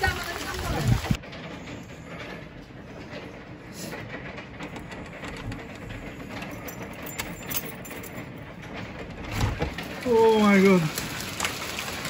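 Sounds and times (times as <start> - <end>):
hail falling: 0.0 - 1.3, 8.8 - 12.0
hailstones clicking: 8.8 - 12.0.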